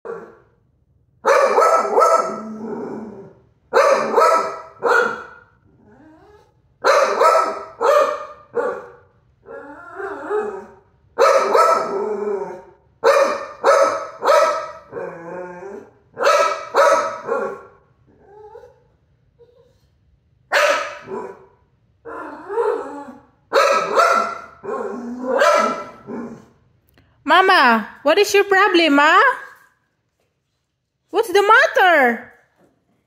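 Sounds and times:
dog barking: 1.2s - 2.5s, 3.7s - 5.6s, 6.8s - 9.1s, 11.2s - 12.0s, 13.0s - 15.0s, 16.2s - 17.8s, 20.5s - 21.6s, 23.5s - 26.4s
dog growling: 2.3s - 3.5s, 5.6s - 6.5s, 9.4s - 10.8s, 11.8s - 12.8s, 14.8s - 16.1s, 17.4s - 18.8s, 21.0s - 23.3s, 24.4s - 26.6s.

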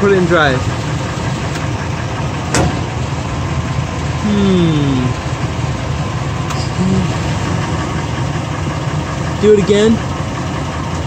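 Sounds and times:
truck engine idling: 0.0s - 11.0s
driveline clunk: 2.5s - 3.0s.

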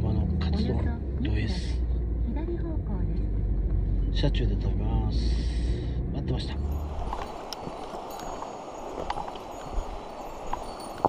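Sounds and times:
river rushing: 6.6s - 11.0s
footsteps on cobbles: 6.7s - 11.0s.

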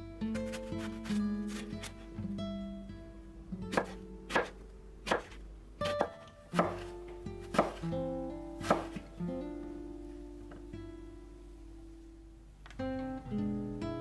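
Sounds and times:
soft guitar music: 0.0s - 14.0s
knife chopping on cutting board: 3.7s - 6.9s, 7.5s - 7.8s, 8.6s - 9.0s.

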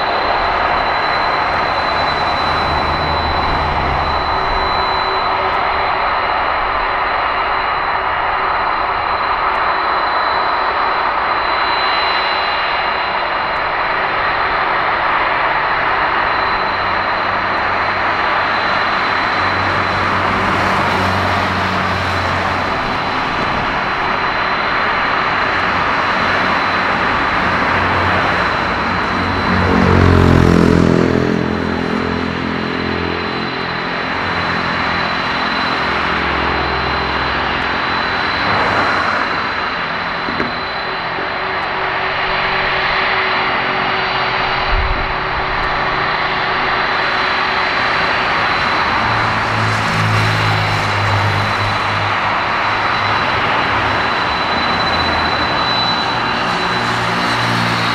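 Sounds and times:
jet engines roaring with whine: 0.0s - 57.9s
deep rumble: 36.3s - 49.5s.

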